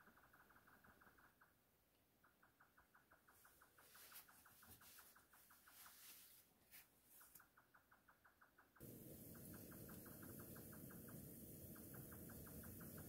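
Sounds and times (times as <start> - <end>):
rapid even chirping: 7.3 - 13.0.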